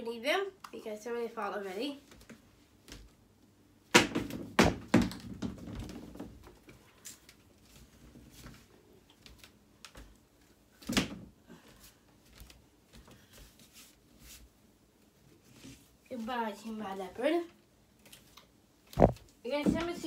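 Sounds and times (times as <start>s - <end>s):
shoes knocking and clattering: 4.0s - 6.7s, 19.0s - 20.0s.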